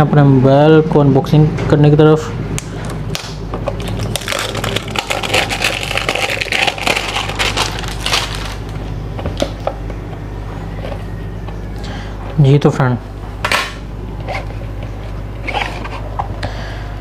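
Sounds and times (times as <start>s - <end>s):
plastic shrink wrap crinkling: 2.8s - 9.5s.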